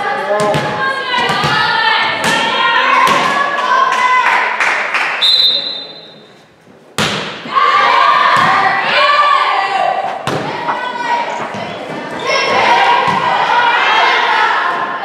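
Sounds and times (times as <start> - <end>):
crowd shouting and chanting: 0.0 - 4.6, 7.4 - 15.0
referee whistle blast: 5.2 - 6.2
hand striking volleyball: 7.0 - 7.4.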